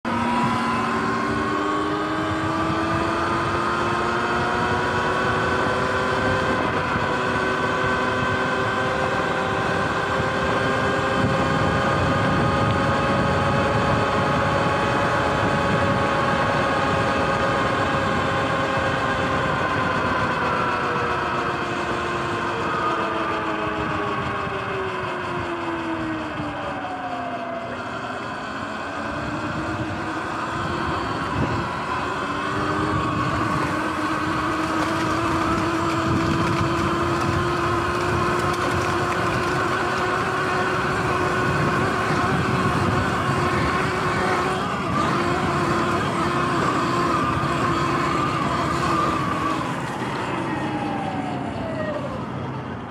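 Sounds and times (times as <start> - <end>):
electric motor whining: 0.0 - 52.8
wind noise: 0.1 - 22.0, 29.0 - 52.2
tyre noise: 32.6 - 49.2.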